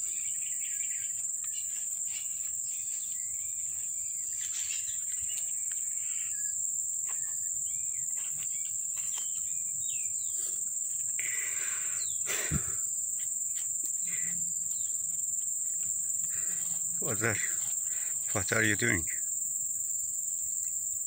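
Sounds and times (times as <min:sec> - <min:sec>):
bird chirps: 0:00.0 - 0:10.6, 0:11.7 - 0:12.6
high-pitched insect drone: 0:00.0 - 0:21.0.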